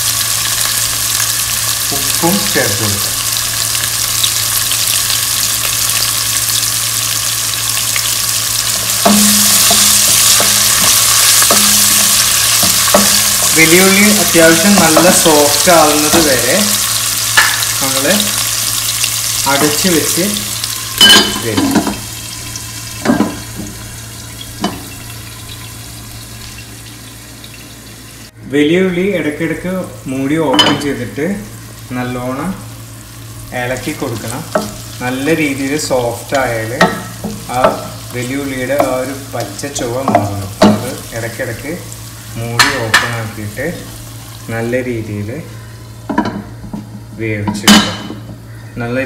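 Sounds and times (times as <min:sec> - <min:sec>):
onions sizzling in oil: 0:00.0 - 0:28.4, 0:29.9 - 0:48.6.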